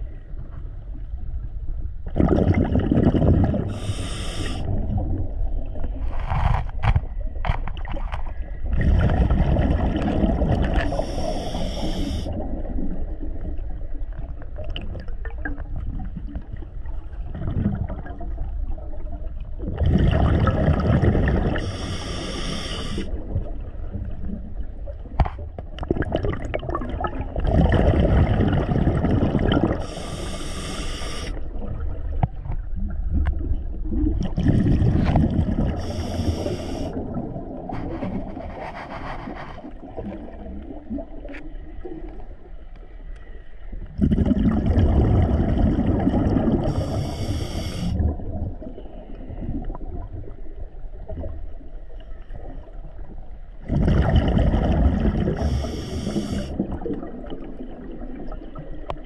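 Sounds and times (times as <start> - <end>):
exhaled air bubbling underwater: 0.0 - 59.0
regulator valve hiss: 3.7 - 4.6, 11.0 - 12.2, 21.6 - 23.1, 29.8 - 31.4, 35.8 - 37.0, 46.7 - 47.9, 55.5 - 56.5.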